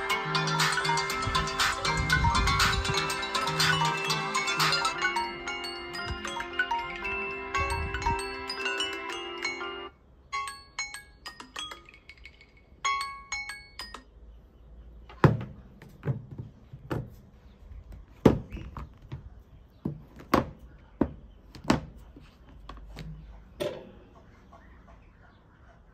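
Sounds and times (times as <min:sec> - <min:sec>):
phone alarm chime melody: 0:00.0 - 0:14.1.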